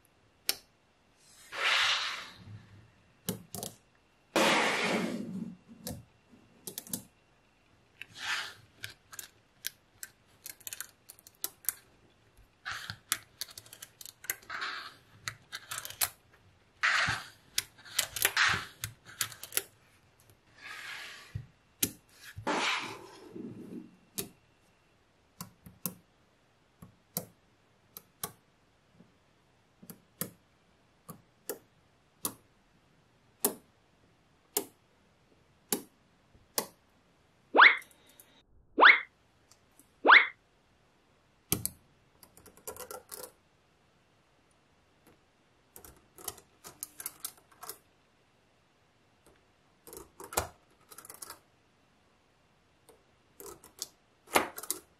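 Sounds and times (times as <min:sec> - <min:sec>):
magnet balls clicking together: 0:12.7 - 0:16.2.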